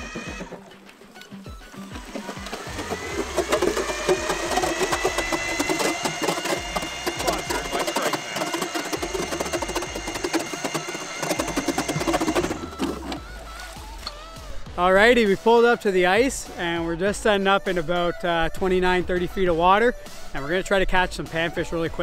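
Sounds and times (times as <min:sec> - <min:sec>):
electric motor whine: 0:00.0 - 0:14.5
auger blades crunching ice: 0:01.8 - 0:13.8.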